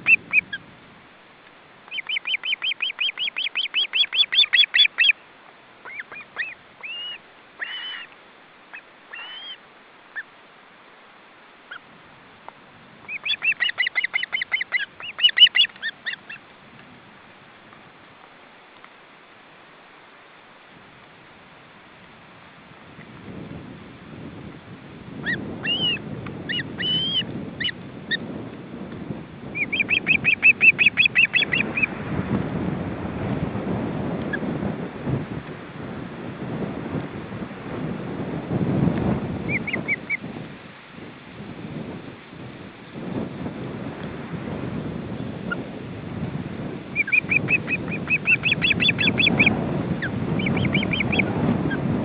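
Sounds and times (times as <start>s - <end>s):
ospreys calling: 0.0s - 0.6s, 1.9s - 5.2s, 5.8s - 9.6s, 13.1s - 16.4s, 29.6s - 31.9s, 39.5s - 40.2s, 46.9s - 51.3s
wind rumbling on microphone: 0.0s - 52.0s.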